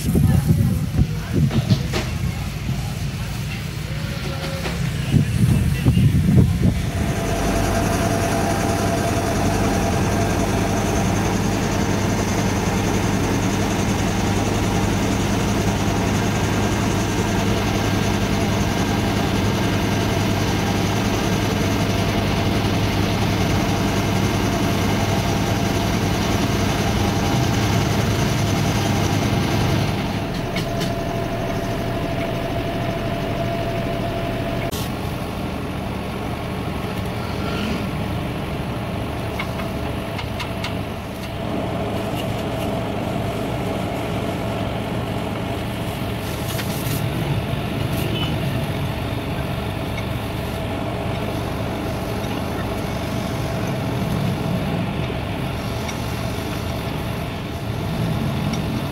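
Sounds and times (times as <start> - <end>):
diesel engine idling: 0.0 - 58.9
faint steady whine: 5.7 - 37.4.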